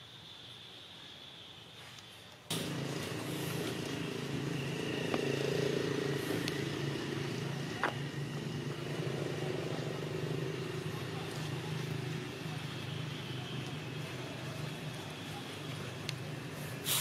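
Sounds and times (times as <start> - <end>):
motor engine humming: 2.5 - 17.0.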